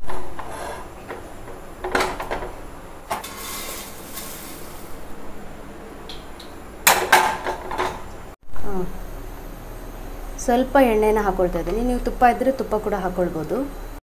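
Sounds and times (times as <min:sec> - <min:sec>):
pan clanking: 0:00.0 - 0:04.9.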